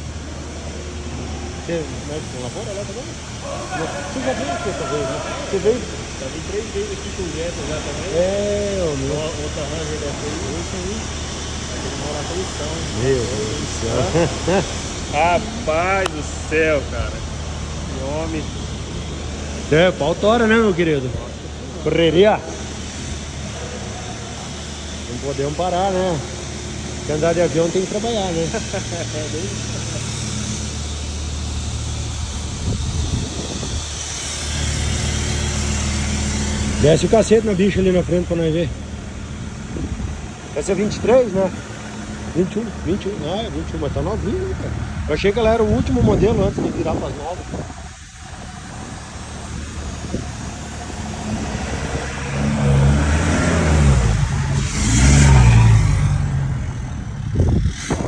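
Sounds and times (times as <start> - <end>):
diesel truck engine droning: 0.0 - 58.0
wind on microphone: 32.6 - 34.1, 57.2 - 58.0.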